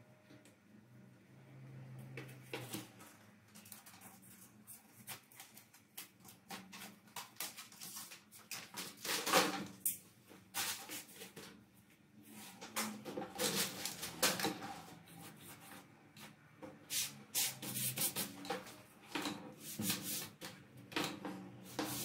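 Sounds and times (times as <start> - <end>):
cardboard and plastic rustling: 2.5 - 9.8, 12.6 - 15.0.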